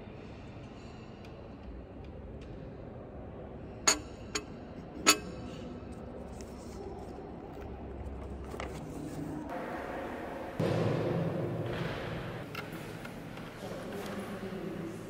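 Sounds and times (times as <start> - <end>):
paper map rustling: 6.2 - 9.5.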